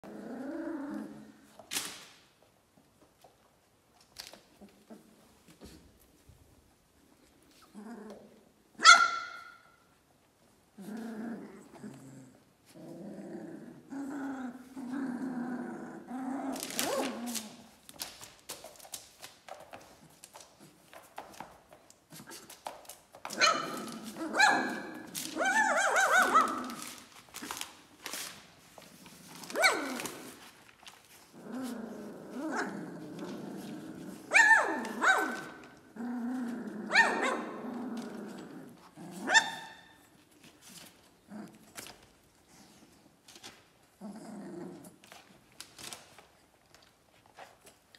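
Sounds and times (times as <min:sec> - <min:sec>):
puppies growling: 0:00.0 - 0:01.6, 0:04.2 - 0:06.0, 0:07.2 - 0:08.8, 0:10.6 - 0:18.0, 0:23.2 - 0:43.2, 0:43.8 - 0:45.6.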